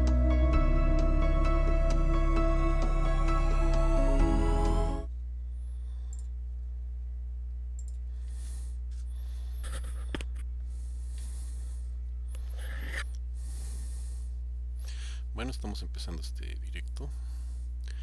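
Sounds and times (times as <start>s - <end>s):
intro music: 0.0s - 5.1s
low hum: 0.0s - 18.0s
click: 6.1s - 6.3s, 7.8s - 8.0s.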